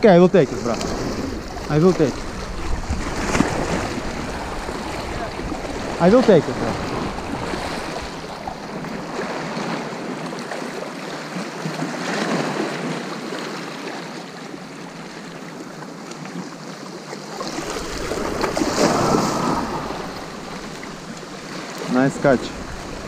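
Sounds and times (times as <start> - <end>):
wind buffeting microphone: 0.0 - 9.9, 17.4 - 23.0
sea water washing at shoreline: 0.0 - 23.0
splashing water: 0.5 - 11.0, 17.0 - 23.0.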